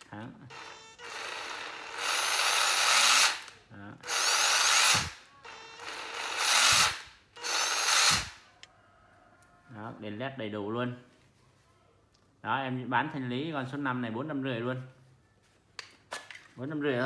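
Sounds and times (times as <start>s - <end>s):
cordless impact driver running: 0.5s - 8.4s.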